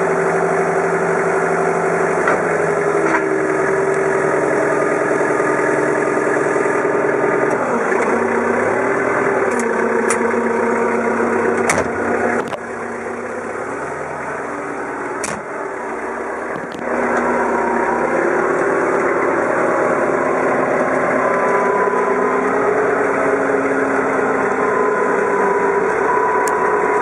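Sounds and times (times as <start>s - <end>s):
diesel forklift engine running: 0.0s - 27.0s.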